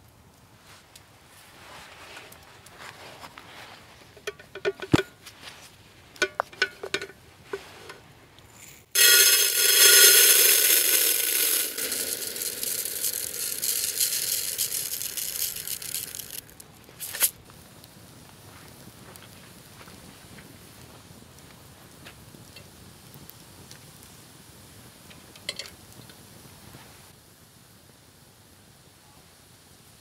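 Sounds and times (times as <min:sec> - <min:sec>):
containers clinking: 0:06.2 - 0:17.3
rice rattling into pot: 0:08.5 - 0:17.4
water pouring into metal pot: 0:09.0 - 0:16.5.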